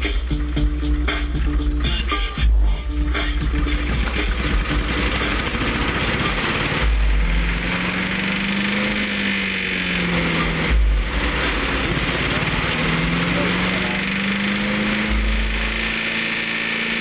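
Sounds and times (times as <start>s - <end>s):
dull low thumps: 0.0s - 9.2s, 10.0s - 13.3s
small gasoline engine running: 0.0s - 17.0s.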